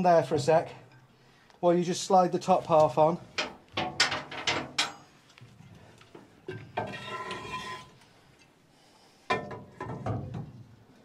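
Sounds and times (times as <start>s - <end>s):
ringing metal scrape: 6.8s - 8.0s.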